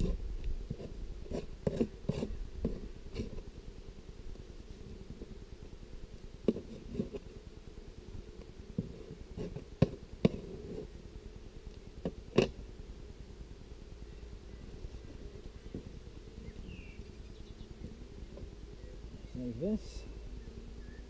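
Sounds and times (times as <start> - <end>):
metal tool scraping wood: 0.0 - 3.4, 6.5 - 7.3, 9.3 - 10.9
steady low hum: 0.0 - 21.0.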